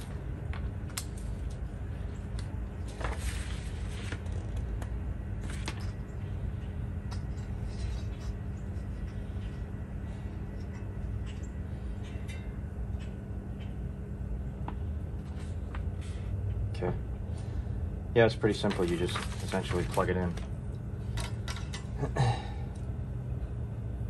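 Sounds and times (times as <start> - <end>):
low hum: 0.0 - 24.0
paper rustling and crinkling: 2.8 - 6.0, 18.5 - 20.6.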